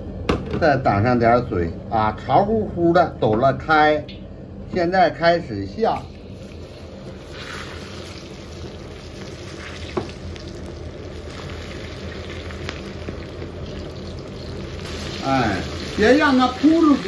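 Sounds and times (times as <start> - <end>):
beans deep-frying in oil: 5.9 - 17.0.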